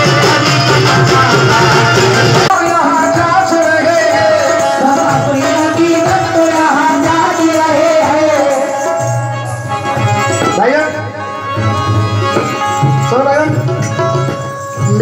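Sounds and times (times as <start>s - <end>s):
person singing into microphone: 0.0s - 11.2s
tabla drumming: 0.0s - 15.0s.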